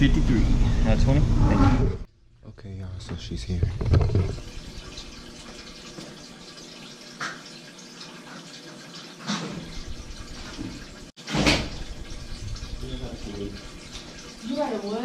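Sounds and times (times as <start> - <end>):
soft knocks: 3.6 - 4.4.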